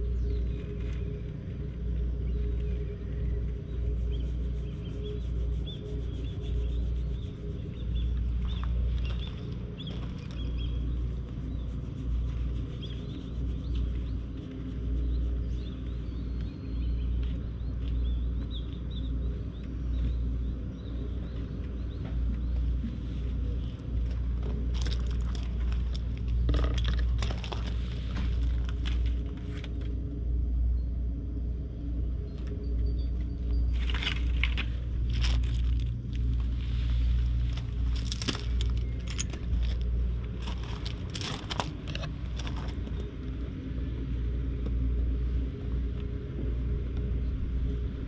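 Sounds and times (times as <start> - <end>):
wind rumble on microphone: 0.0 - 48.0
rustling and crackling: 2.5 - 16.5, 21.5 - 30.0, 33.6 - 43.1.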